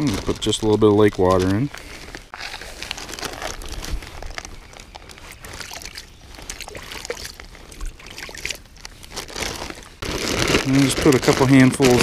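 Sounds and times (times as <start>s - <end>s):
plastic bag handled: 0.0s - 12.0s
water splashing and trickling: 2.4s - 9.9s.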